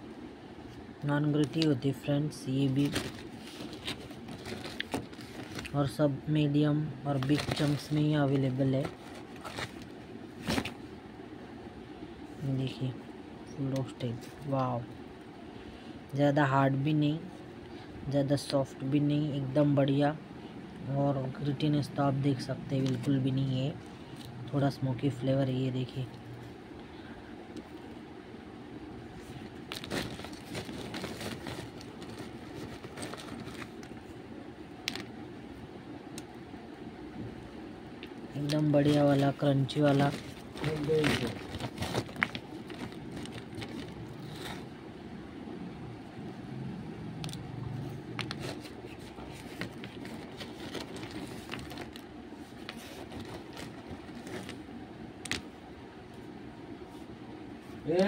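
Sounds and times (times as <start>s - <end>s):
low background rumble: 0.0s - 58.0s
rummaging in plastic sack: 2.5s - 6.0s, 7.0s - 10.9s, 29.2s - 34.1s, 38.4s - 44.8s, 48.2s - 54.7s.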